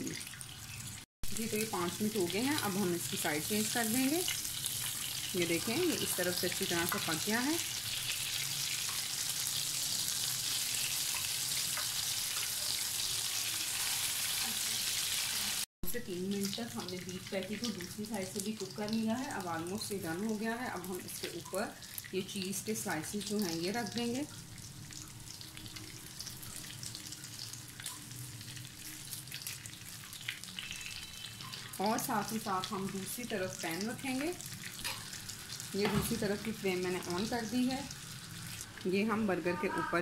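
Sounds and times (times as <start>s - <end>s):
beef patties sizzling in oil: 0.0s - 40.0s.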